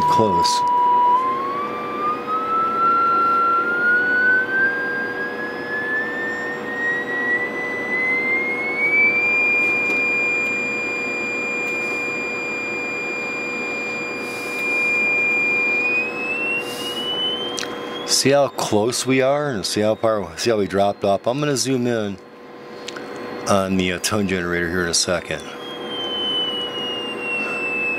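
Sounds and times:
rising sine test tone: 0.0s - 27.9s
hiss: 16.6s - 17.0s.

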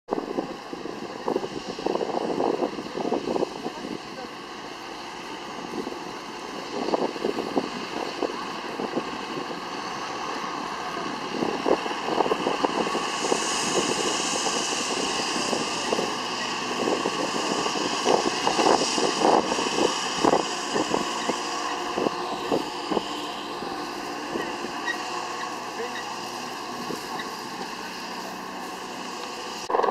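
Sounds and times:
tractor engine running: 0.1s - 29.9s
hiss of liquid spray: 11.5s - 29.6s.

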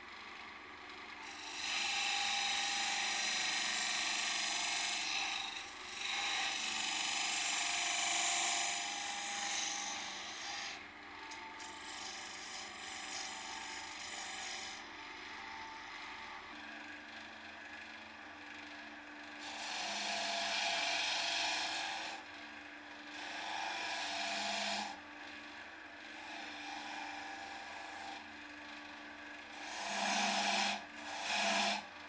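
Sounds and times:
lathe running: 1.2s - 10.8s, 11.7s - 17.8s, 18.5s - 28.2s, 28.8s - 32.0s
turning tool scraping wood: 11.6s - 14.8s, 19.4s - 22.2s, 23.1s - 25.0s, 26.1s - 28.2s, 29.5s - 31.9s.

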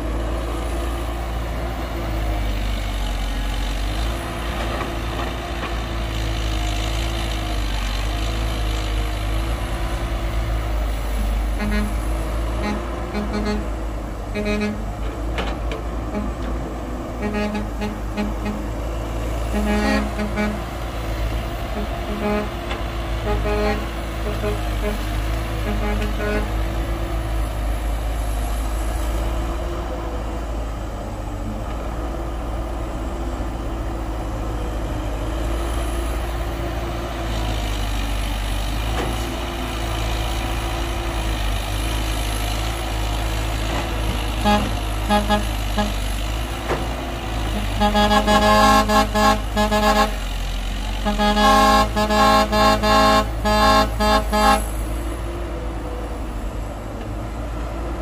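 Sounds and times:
diesel engine running: 0.0s - 58.0s
vehicle horn honking: 11.6s - 12.0s, 12.6s - 13.7s, 14.4s - 14.8s, 17.2s - 18.7s, 19.5s - 20.6s, 21.8s - 22.6s, 23.2s - 25.0s, 25.6s - 26.5s, 44.4s - 46.0s, 47.5s - 50.2s, 51.0s - 54.7s.

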